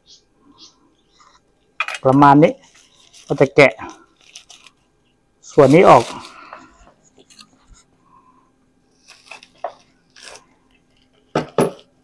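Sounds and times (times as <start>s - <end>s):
bubble wrap rustling and crackling: 2.5s - 7.4s, 8.9s - 11.3s.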